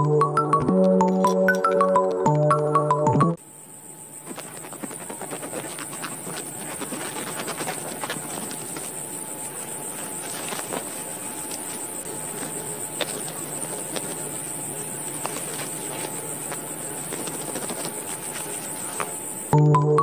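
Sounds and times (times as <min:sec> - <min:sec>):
steady high hiss: 0:03.4 - 0:19.6
rustle of cut stalks: 0:04.1 - 0:19.6
sickle snipping wheat stalks: 0:04.2 - 0:19.2.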